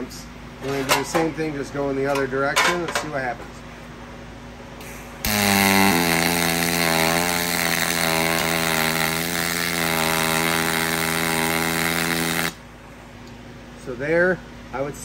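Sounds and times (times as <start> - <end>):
welding arc buzzing: 4.8 - 12.6.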